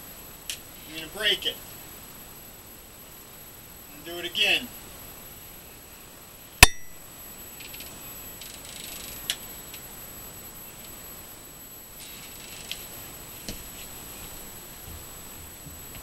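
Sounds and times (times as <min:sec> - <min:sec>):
faint scratching: 0:12.0 - 0:14.5.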